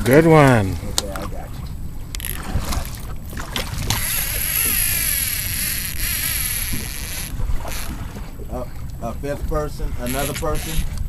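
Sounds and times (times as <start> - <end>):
fishing reel whining: 2.1 - 2.6, 3.9 - 8.0, 10.0 - 11.0.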